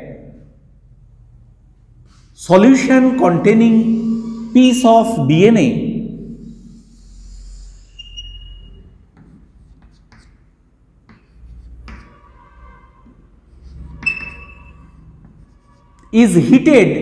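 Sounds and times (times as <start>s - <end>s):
pen scratching on surface: 3.8s - 4.6s, 6.4s - 16.1s.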